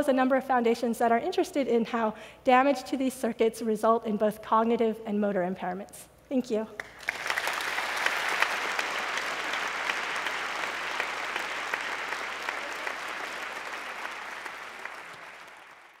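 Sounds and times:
audience applauding: 6.8s - 16.0s.

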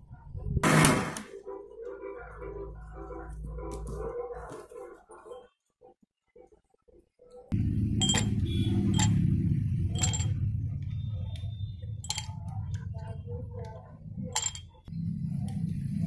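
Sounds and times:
ice cubes clinking into glasses: 12.0s - 12.4s, 14.3s - 14.8s.

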